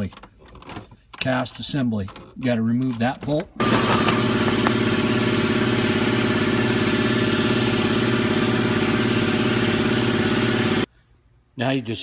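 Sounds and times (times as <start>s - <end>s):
power tool buzzing on a bolt: 3.6s - 10.8s.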